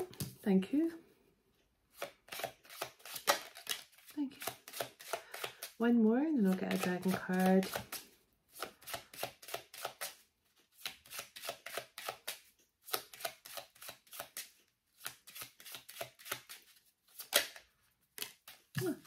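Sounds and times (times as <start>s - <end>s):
cards being shuffled: 0.0s - 0.4s, 1.9s - 5.8s, 6.4s - 19.0s.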